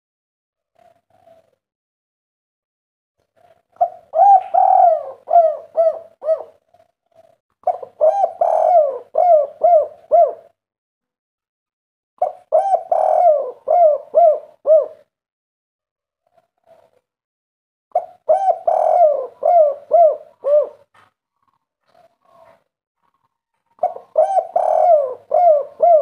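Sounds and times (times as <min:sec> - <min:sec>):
dove cooing: 0:00.6 - 0:01.7, 0:03.2 - 0:10.6, 0:12.2 - 0:15.1, 0:16.2 - 0:17.1, 0:17.9 - 0:26.0.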